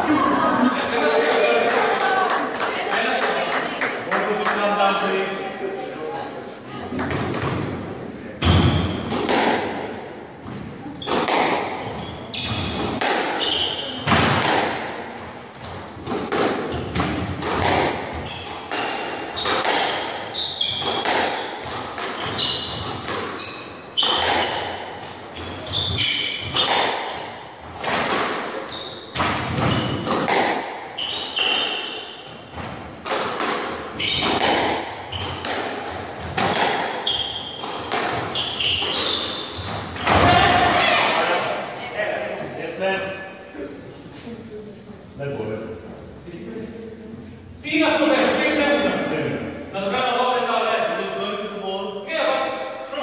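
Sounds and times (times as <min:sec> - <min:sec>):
squash ball smacking rackets and walls: 0:06.9 - 0:41.5
shoes squeaking on wooden floor: 0:10.4 - 0:14.4, 0:15.2 - 0:44.5, 0:45.5 - 0:46.4.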